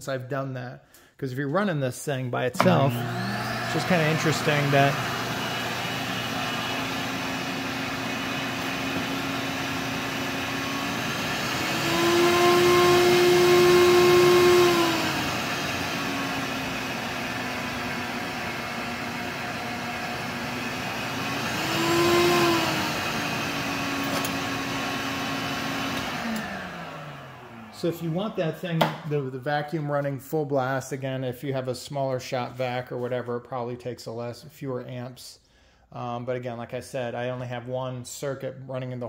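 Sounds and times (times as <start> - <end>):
shop vac motor running: 2.6 - 29.1.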